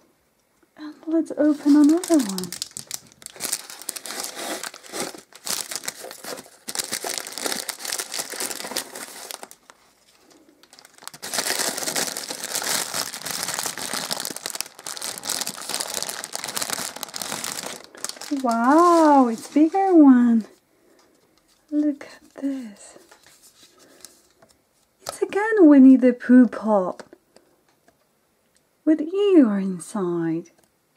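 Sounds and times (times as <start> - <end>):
gift wrapping crinkling: 0.8 - 24.4.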